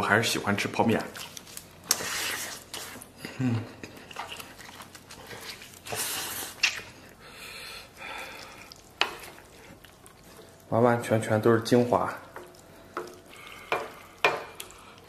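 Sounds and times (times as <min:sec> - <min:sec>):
chewing and mouth clicks: 0:00.9 - 0:07.2, 0:07.9 - 0:10.7, 0:12.2 - 0:15.0
slurping noodles: 0:01.2 - 0:03.1, 0:04.0 - 0:07.2
person humming mm: 0:03.2 - 0:03.7.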